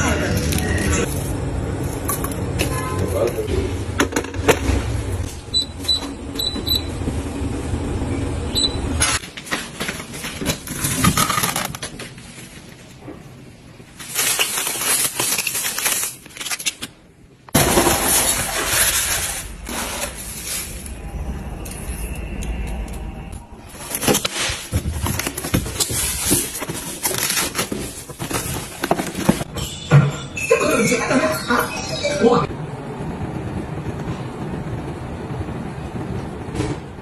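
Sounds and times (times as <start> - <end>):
kettle control panel beeps: 5.5 - 6.9, 8.5 - 8.8.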